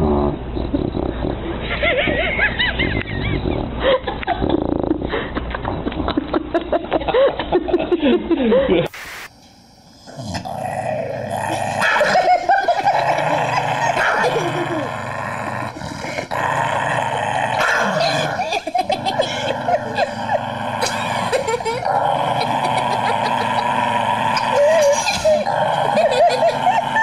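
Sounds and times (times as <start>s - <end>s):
dog whining and growling: 10.0s - 27.0s.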